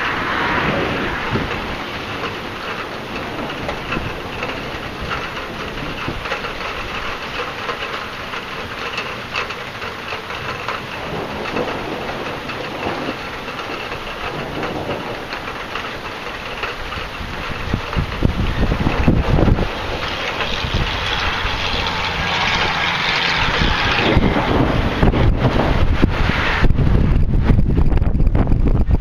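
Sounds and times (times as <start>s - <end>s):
rain rushing hiss: 0.0s - 29.0s
raindrops ticking on surfaces: 0.0s - 29.0s.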